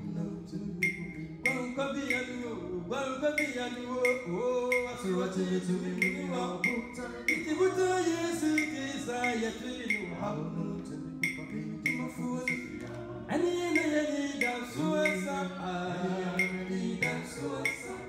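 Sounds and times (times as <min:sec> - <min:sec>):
male vocal group singing in harmony: 0:00.0 - 0:18.0
steady ticking beat: 0:00.8 - 0:02.4, 0:03.2 - 0:05.1, 0:05.9 - 0:10.2, 0:11.2 - 0:13.0, 0:13.6 - 0:18.0.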